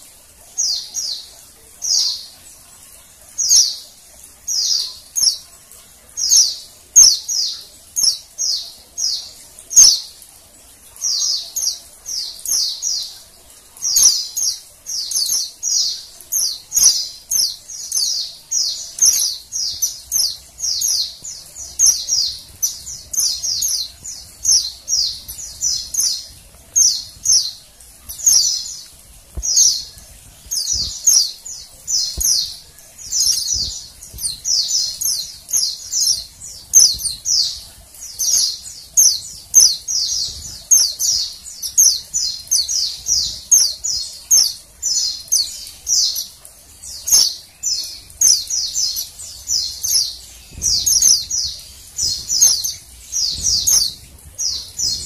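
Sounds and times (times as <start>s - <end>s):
bird giving high thin chirps: 13.9s - 44.6s.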